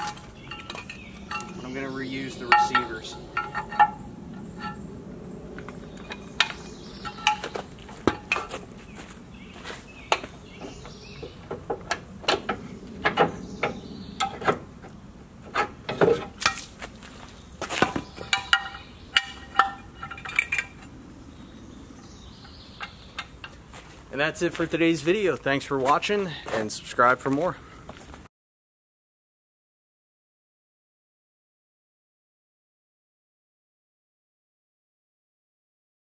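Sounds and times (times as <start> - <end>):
metal parts clanking: 0.0 - 1.8, 2.4 - 4.8, 5.9 - 8.6, 17.8 - 20.9.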